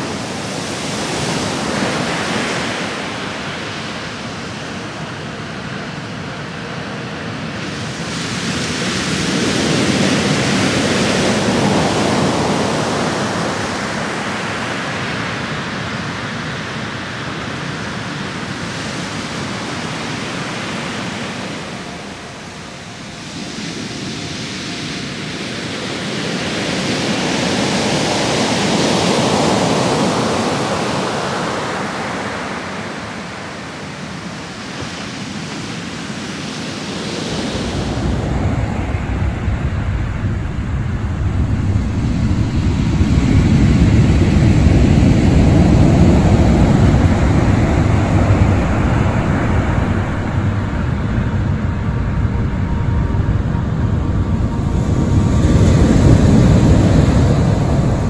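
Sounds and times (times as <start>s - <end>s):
surf breaking on beach: 34.9s - 58.0s.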